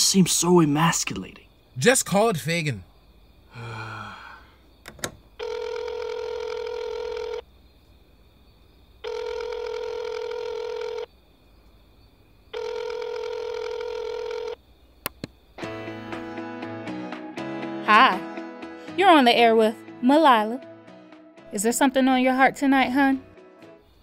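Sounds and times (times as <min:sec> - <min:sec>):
telephone ringback tone: 0:05.4 - 0:07.4, 0:09.0 - 0:11.1, 0:12.6 - 0:14.6.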